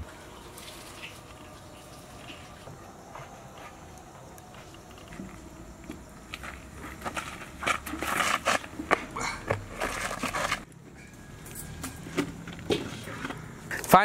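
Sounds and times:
shuffling steps: 0:00.0 - 0:10.7.

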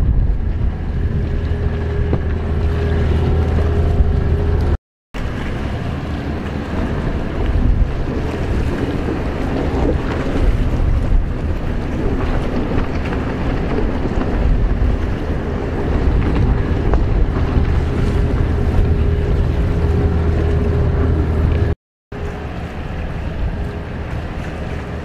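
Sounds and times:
held engine note: 0:00.0 - 0:09.2, 0:15.9 - 0:25.0
jet ski engines droning: 0:00.0 - 0:25.0
wind on microphone: 0:00.0 - 0:25.0.

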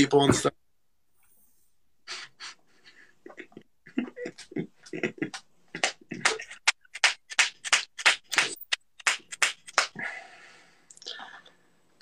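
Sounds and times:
stifled breathy laughter: 0:02.0 - 0:06.7.

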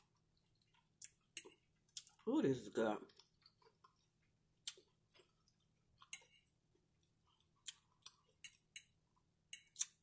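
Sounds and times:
fork clicking on plate: 0:08.4 - 0:10.0.

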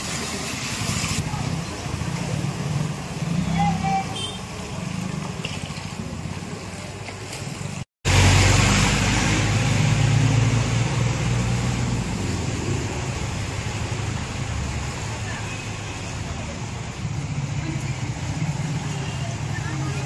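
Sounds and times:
motorcycle engines running: 0:01.2 - 0:07.8.

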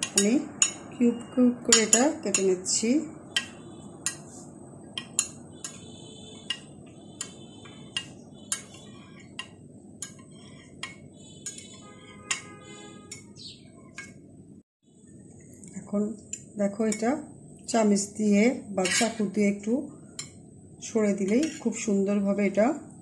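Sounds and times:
knife tapping glass dish: 0:06.4 - 0:13.3.

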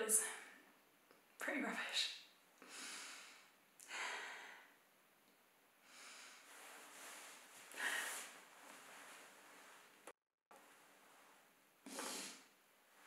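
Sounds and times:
woman breathing and sniffing: 0:05.8 - 0:10.2, 0:11.8 - 0:12.5.

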